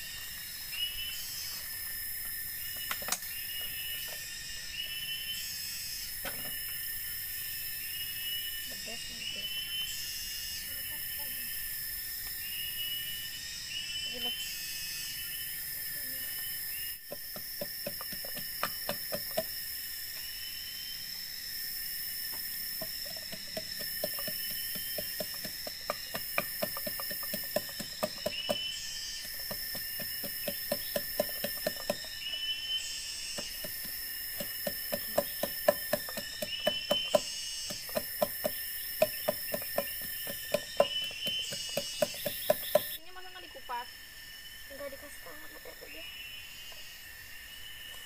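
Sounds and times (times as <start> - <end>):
forest insects chorus: 0.0 - 48.0
stick pounding in bamboo tube: 17.0 - 19.5, 22.8 - 32.1, 33.4 - 43.0.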